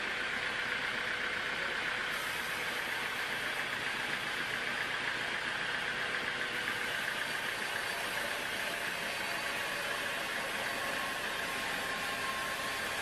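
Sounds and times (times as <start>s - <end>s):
band saw cutting log: 6.5s - 13.0s.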